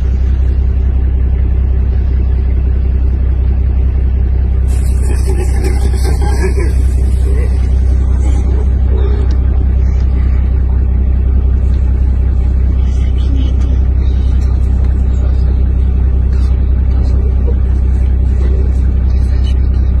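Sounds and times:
vehicle engine idling: 0.0 - 20.0
faint voices: 4.6 - 20.0.

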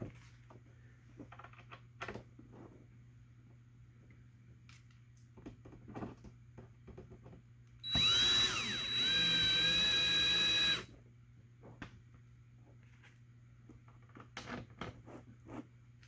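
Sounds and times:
cordless drill whining: 7.8 - 10.9.

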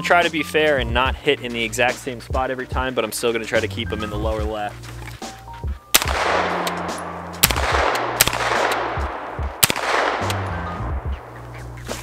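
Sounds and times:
gunshots with echo: 5.9 - 11.3.

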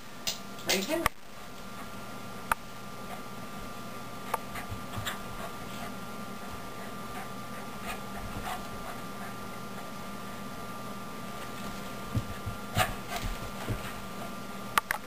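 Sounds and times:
faint hum: 0.0 - 15.0
dog paws tapping on floor: 4.3 - 5.6, 11.3 - 14.2.

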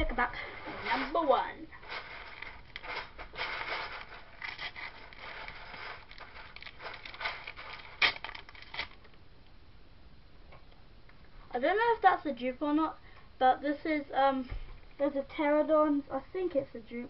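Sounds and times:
wrapper rustling and tearing: 0.0 - 9.2.

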